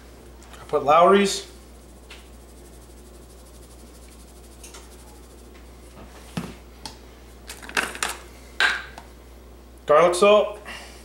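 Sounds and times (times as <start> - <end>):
low room hum: 0.0 - 11.0
salt granules rasping: 0.5 - 6.2.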